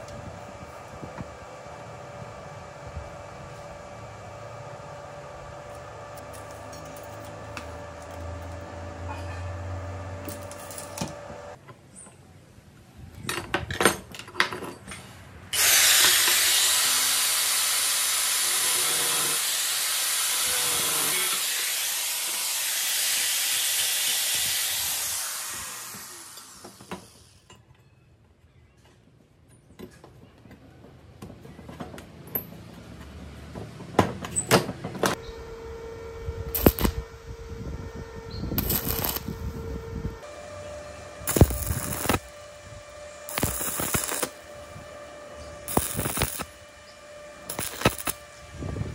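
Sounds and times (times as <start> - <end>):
angle grinder cutting steel: 15.6 - 27.5, 36.5 - 37.0, 38.6 - 39.3, 40.5 - 48.4.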